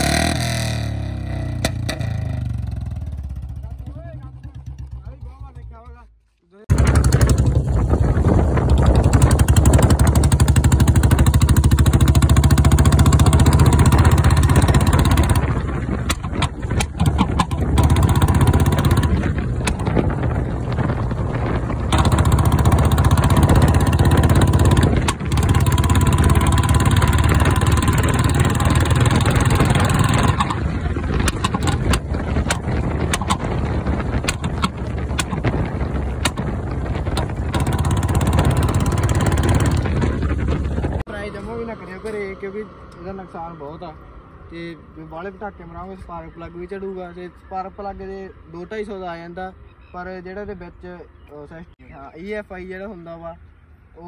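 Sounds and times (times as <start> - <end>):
motorcycle engine running: 0.0 - 6.1, 6.7 - 41.6
exhaust backfire pops: 1.4 - 3.4, 6.7 - 41.1.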